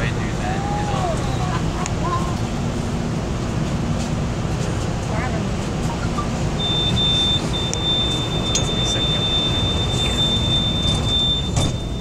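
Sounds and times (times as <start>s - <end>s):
standing train rumble: 0.0s - 12.0s
train door warning buzzer: 6.6s - 12.0s.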